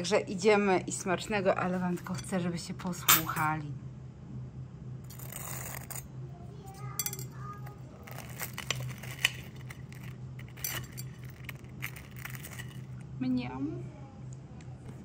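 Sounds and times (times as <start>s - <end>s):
low steady hum: 0.0s - 15.0s
crispy crust crunching: 7.6s - 13.1s.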